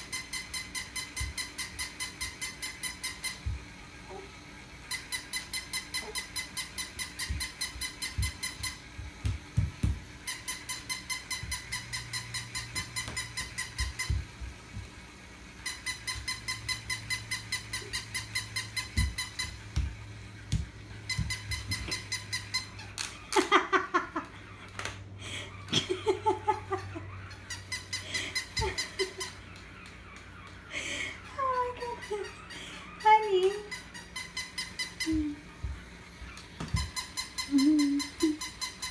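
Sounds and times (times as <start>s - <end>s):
toy puppy electronic beeps: 0.0s - 3.6s, 4.8s - 9.1s, 10.2s - 14.3s, 15.6s - 19.7s, 21.0s - 22.9s, 27.3s - 30.5s, 31.4s - 38.9s
thumps on tiled floor: 7.2s - 10.2s, 12.8s - 15.0s, 18.9s - 22.0s
child's voice: 31.4s - 32.3s.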